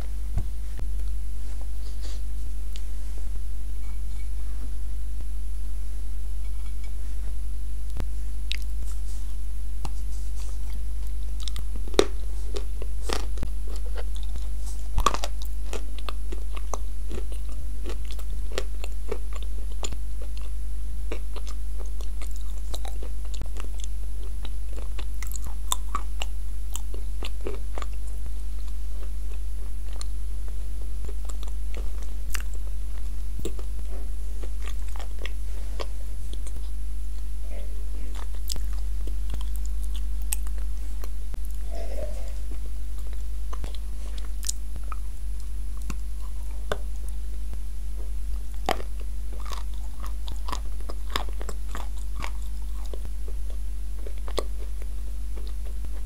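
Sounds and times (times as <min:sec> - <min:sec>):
low electrical hum: 0:00.0 - 0:56.0
chewing and crunching clay: 0:09.8 - 0:37.3, 0:38.0 - 0:41.6, 0:48.0 - 0:56.0.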